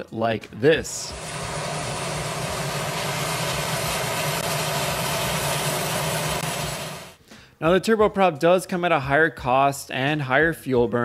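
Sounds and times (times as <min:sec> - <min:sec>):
turboprop engine running: 0:01.1 - 0:07.2.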